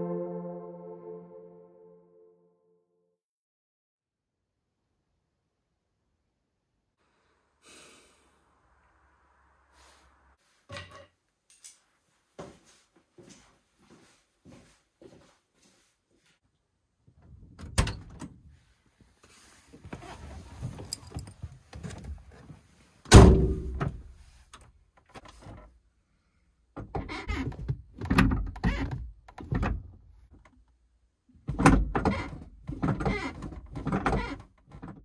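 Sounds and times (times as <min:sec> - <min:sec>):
rustling and clattering: 0:19.7 - 0:22.7.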